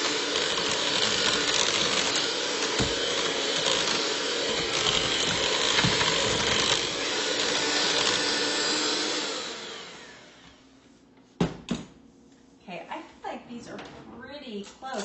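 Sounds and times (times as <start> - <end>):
electric hand mixer running: 0.0 - 10.7.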